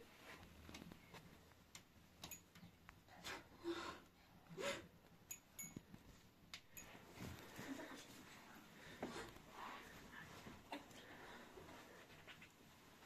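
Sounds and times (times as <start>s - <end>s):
beaded trinkets tinkling: 5.3s - 5.9s, 6.7s - 7.2s.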